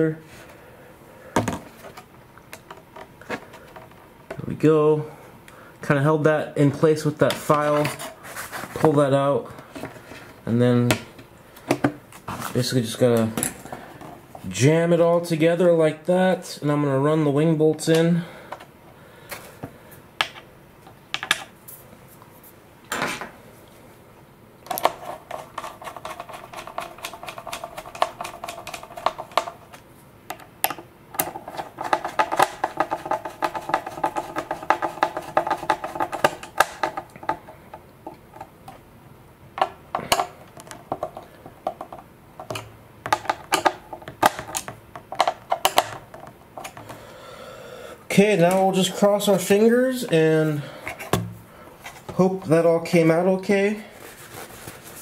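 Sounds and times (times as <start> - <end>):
handling taps and knocks: 10.8 - 12.4, 24.7 - 38.8, 39.6 - 47.0, 50.8 - 52.5.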